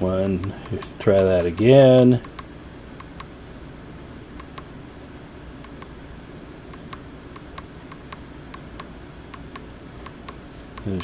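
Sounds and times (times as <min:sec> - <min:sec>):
low steady hum: 0:00.0 - 0:11.0
push buttons clicking: 0:00.2 - 0:03.3, 0:04.4 - 0:04.7, 0:05.6 - 0:05.9, 0:06.7 - 0:11.0.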